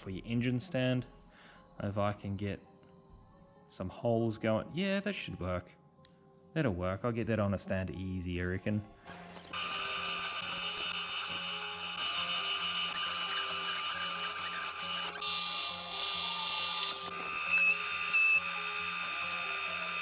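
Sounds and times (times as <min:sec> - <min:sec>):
electric drill whining: 0:09.4 - 0:20.0.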